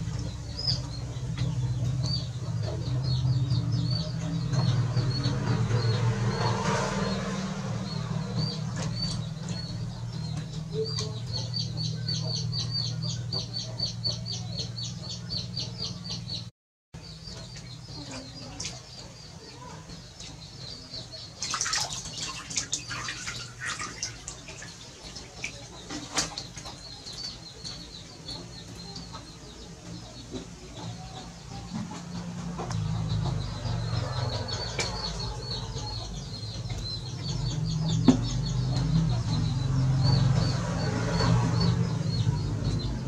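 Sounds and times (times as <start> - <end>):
water splashing in plastic tub: 21.2 - 27.4.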